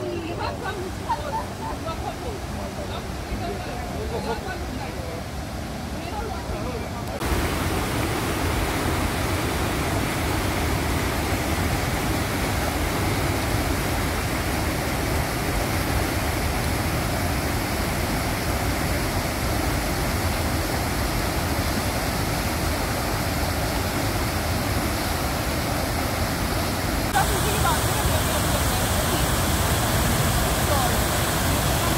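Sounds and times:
waterfall rushing: 0:00.0 - 0:31.9.

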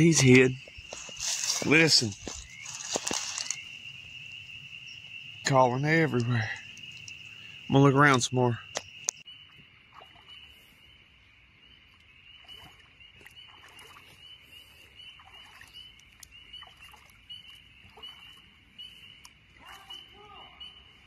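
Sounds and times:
frogs peeping: 0:00.0 - 0:21.0
faint rustles and clicks: 0:00.7 - 0:03.7.

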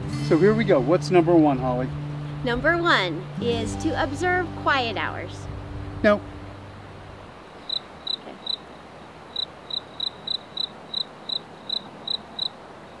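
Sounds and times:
cricket chirping: 0:06.6 - 0:13.0.

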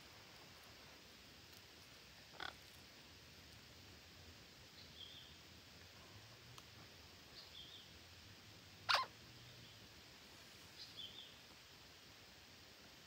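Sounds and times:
parakeet harsh call: 0:08.9 - 0:09.1.

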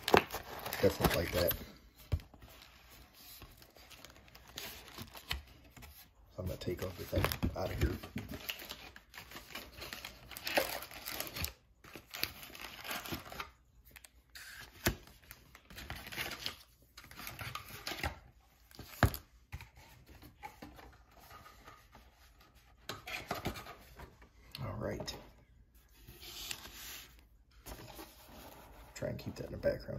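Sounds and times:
packaging tearing and crinkling: 0:00.0 - 0:01.6, 0:07.1 - 0:13.5.

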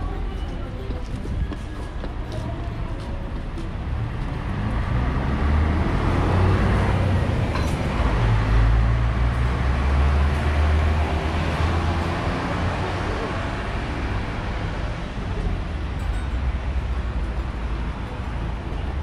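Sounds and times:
bus engine droning: 0:00.0 - 0:19.0
street and traffic noise: 0:00.0 - 0:19.0.

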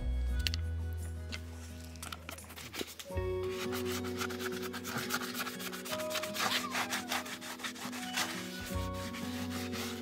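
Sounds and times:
background music: 0:00.0 - 0:10.0
brush scrubbing hoof: 0:03.4 - 0:10.0.

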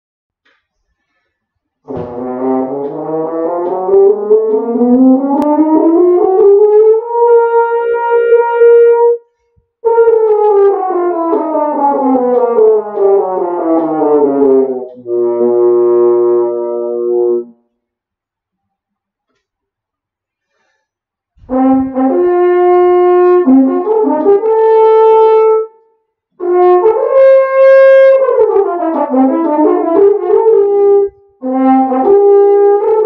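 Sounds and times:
breath: 0:00.8 - 0:01.7, 0:09.2 - 0:09.7, 0:20.3 - 0:21.1
french horn playing a scale: 0:01.9 - 0:09.2, 0:09.8 - 0:17.6, 0:21.4 - 0:25.8, 0:26.4 - 0:33.0.

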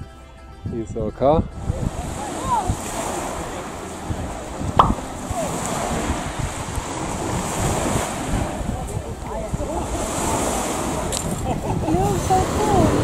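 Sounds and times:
wind buffeting microphone: 0:00.6 - 0:13.0
sea waves washing on shore: 0:01.6 - 0:13.0
short sharp sound: 0:04.8 - 0:05.2.

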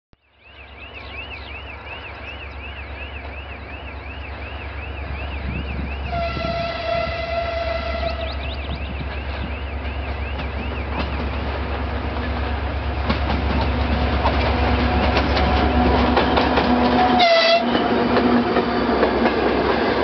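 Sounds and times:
locomotive horn blast: 0:06.0 - 0:08.4, 0:16.8 - 0:17.9.

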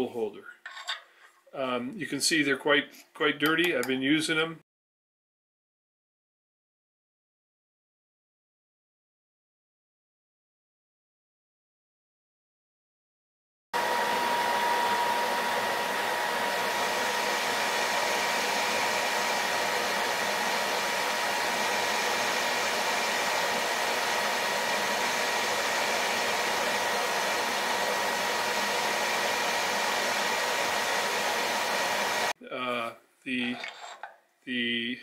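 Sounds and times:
metal lathe whirring and whining: 0:13.8 - 0:32.3.

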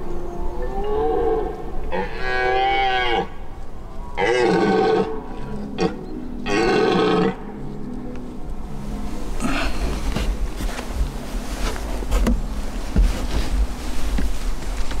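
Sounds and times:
deer stag roaring: 0:00.6 - 0:03.4, 0:04.2 - 0:07.4.

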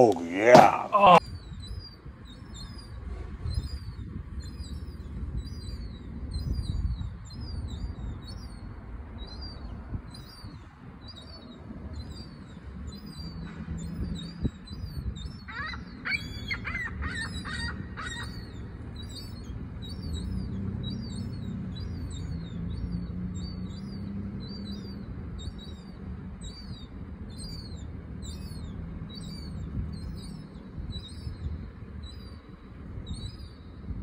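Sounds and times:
steady low rumble: 0:01.2 - 0:34.0
young gull begging calls: 0:13.9 - 0:32.4
harsh lower gull calls: 0:15.4 - 0:18.6.

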